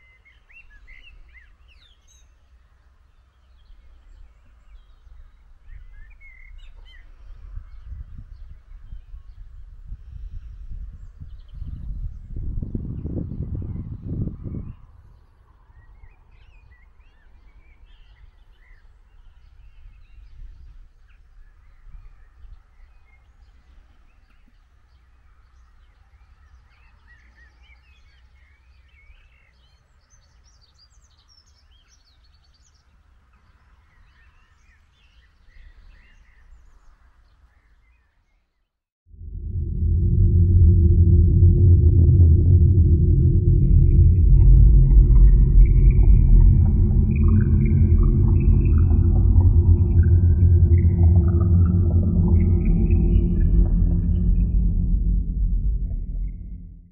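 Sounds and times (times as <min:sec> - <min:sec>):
faint low rumble: 0:39.1 - 0:56.9.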